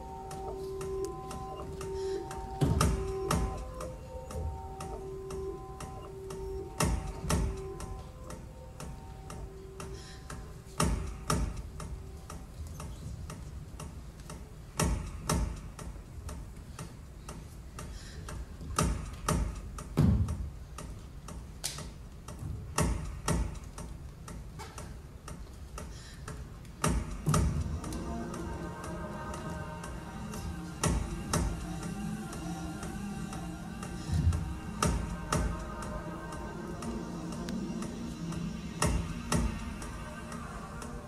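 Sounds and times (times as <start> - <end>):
held electronic tones: 0.0 - 10.0
music with sustained tones: 0.0 - 19.4, 26.8 - 41.0
faint steady ticking: 0.0 - 41.0.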